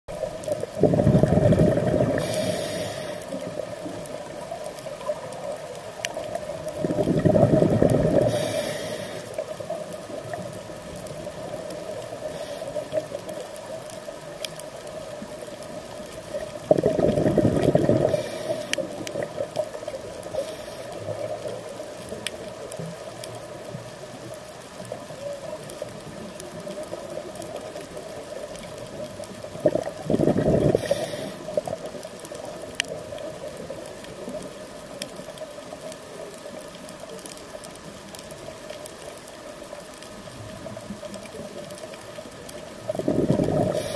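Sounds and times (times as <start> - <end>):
faint clicks: 0.1 - 43.9
bubbling bursts of exhaled air: 0.5 - 4.4, 6.5 - 9.4, 16.6 - 19.5, 29.5 - 31.7, 42.8 - 43.9
regulator inhalation hiss: 2.0 - 3.5, 8.1 - 9.6, 12.2 - 13.1, 17.9 - 18.9, 20.3 - 21.2, 30.7 - 31.6, 43.6 - 43.9.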